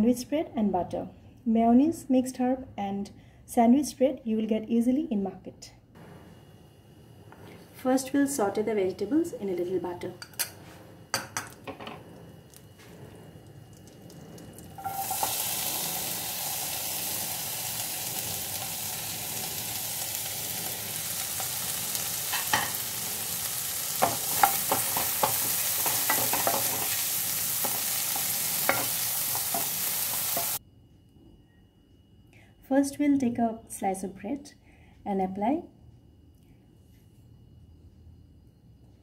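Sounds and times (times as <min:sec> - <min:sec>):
vegetables sizzling in pan: 0:14.4 - 0:30.6.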